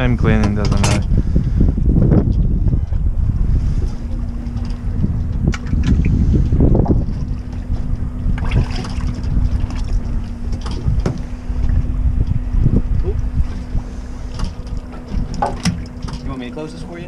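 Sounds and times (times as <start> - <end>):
steady low hum: 0.0 - 17.0
wind buffeting microphone: 0.0 - 17.0.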